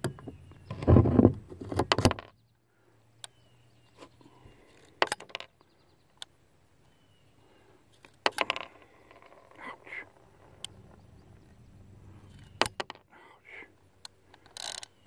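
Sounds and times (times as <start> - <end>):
revolver handling noise: 8.0 - 13.1.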